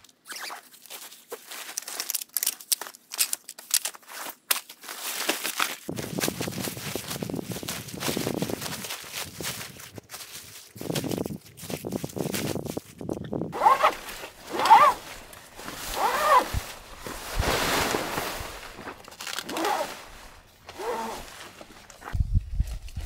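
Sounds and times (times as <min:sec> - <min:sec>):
zipper being pulled: 0:13.5 - 0:17.2, 0:18.8 - 0:21.7.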